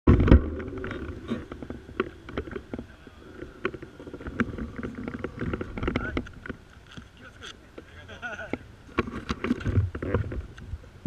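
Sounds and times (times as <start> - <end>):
motorcycle engines idling: 0.7 - 9.0.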